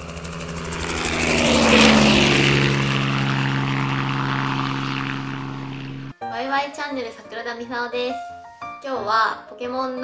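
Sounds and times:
engine drone sweeping past: 0:00.0 - 0:06.2.

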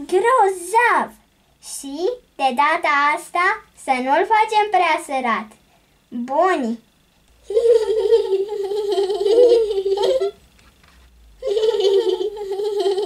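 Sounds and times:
person laughing high-pitched: 0:07.4 - 0:10.4, 0:11.4 - 0:13.0.

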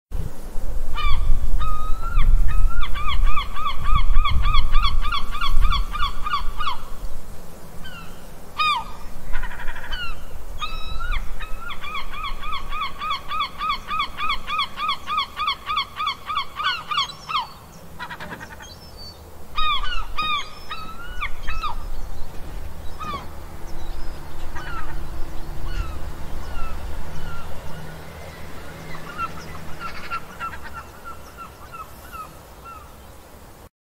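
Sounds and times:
gulls laughing calls: 0:01.0 - 0:07.0, 0:07.8 - 0:33.0.

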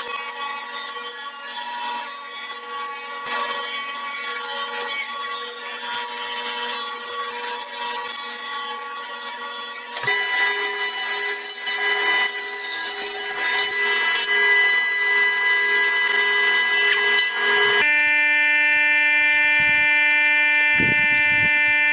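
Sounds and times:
saw blade cutting wood: 0:00.0 - 0:17.9
table saw motor whine: 0:00.0 - 0:21.9.

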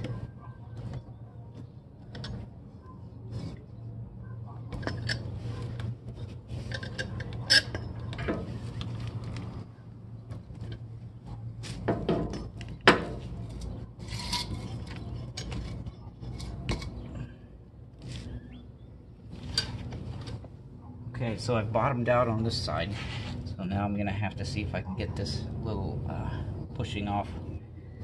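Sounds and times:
metal rubbing and scraping: 0:00.0 - 0:17.4, 0:18.0 - 0:20.8.

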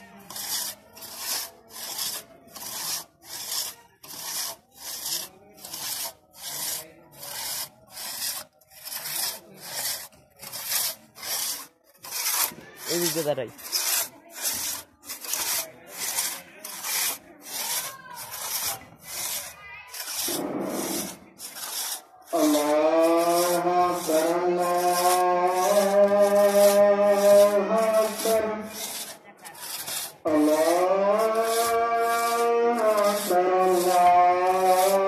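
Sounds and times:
crosscut saw rasping: 0:00.0 - 0:35.0.

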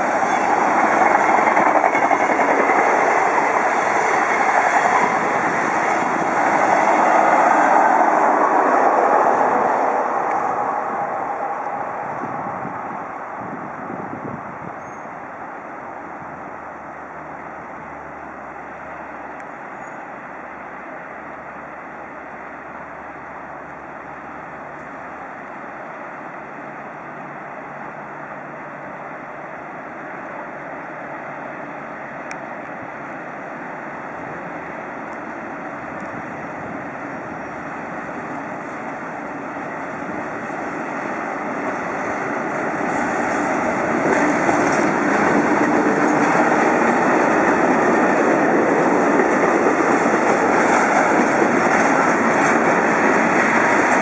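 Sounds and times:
electric locomotive hauling freight train: 0:00.0 - 0:54.0.

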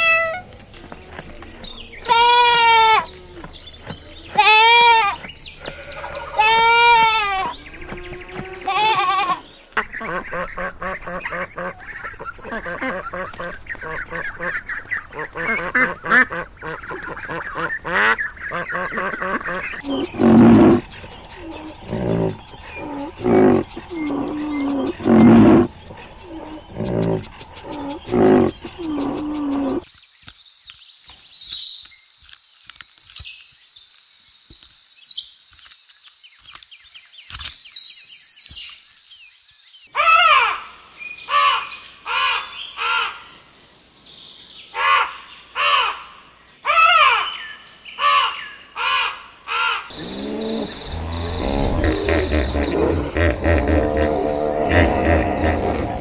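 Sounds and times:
low pitched animal calls: 0:04.3 - 0:29.8, 0:49.9 - 0:56.0.

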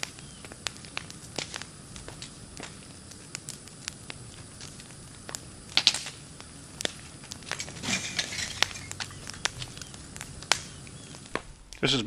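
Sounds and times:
house fire crackling: 0:00.0 - 0:12.0
sharp pops of fire: 0:00.0 - 0:12.0.

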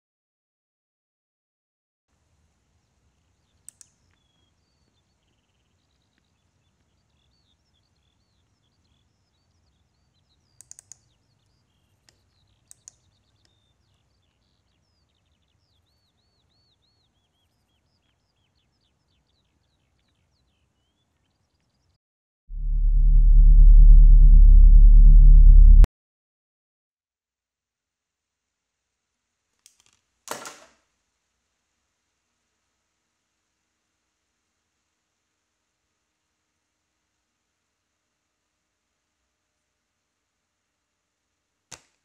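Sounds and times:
faint birdsong chirps: 0:02.7 - 0:22.0
computer mouse clicks: 0:03.7 - 0:04.0, 0:10.6 - 0:11.2, 0:12.0 - 0:13.6.

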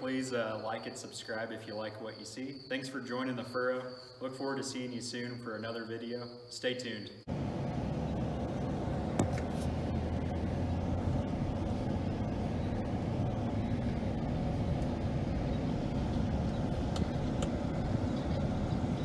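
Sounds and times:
vehicle engine and road rumble: 0:07.3 - 0:19.0.

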